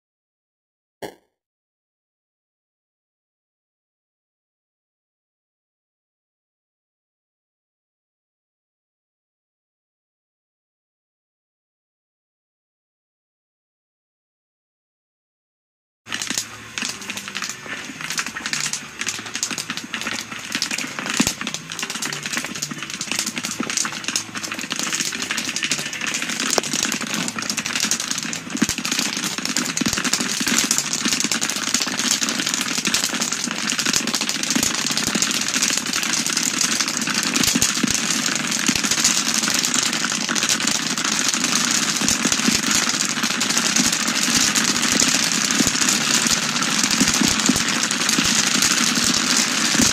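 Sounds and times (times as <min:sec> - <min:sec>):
popcorn popping in a kettle: 0:16.1 - 0:49.9.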